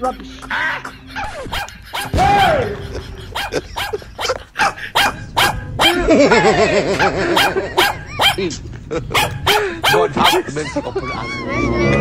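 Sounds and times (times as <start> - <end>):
dog barking: 1.2 - 2.5, 3.3 - 6.1, 7.0 - 8.4, 9.1 - 10.5.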